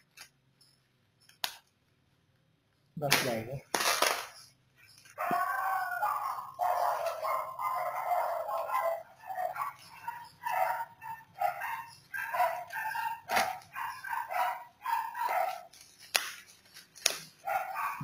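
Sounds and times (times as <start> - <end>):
dog yipping: 5.1 - 15.8, 17.4 - 18.0
scissors cutting plastic: 12.4 - 18.0.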